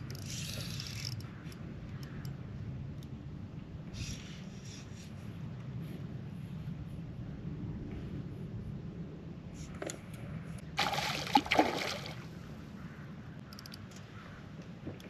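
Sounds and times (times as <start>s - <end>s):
fish splashing at the surface: 10.8s - 12.2s.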